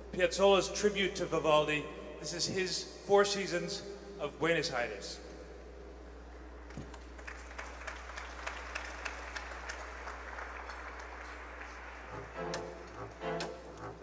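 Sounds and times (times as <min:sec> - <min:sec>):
audience applauding: 0:06.7 - 0:14.0
string ensemble playing: 0:11.7 - 0:14.0.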